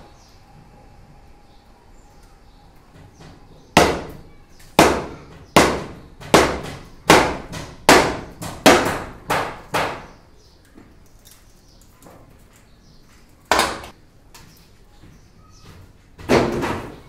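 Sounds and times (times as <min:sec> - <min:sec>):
hard knocks on bamboo props: 0:03.0 - 0:04.2, 0:04.8 - 0:10.1, 0:13.5 - 0:14.0, 0:16.2 - 0:17.0.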